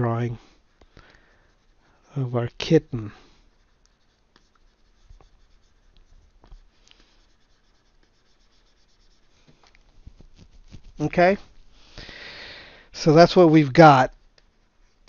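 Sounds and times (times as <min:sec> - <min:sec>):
stylus scratching on tablet: 0:00.0 - 0:11.8.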